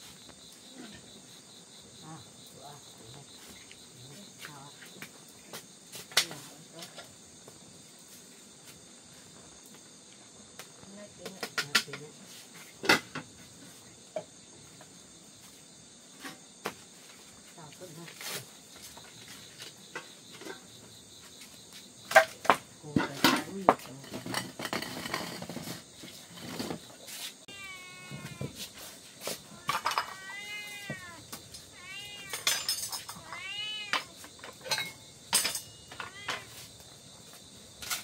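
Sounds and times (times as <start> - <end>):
cat meowing: 27.5 - 28.6, 29.4 - 34.2, 35.9 - 36.6.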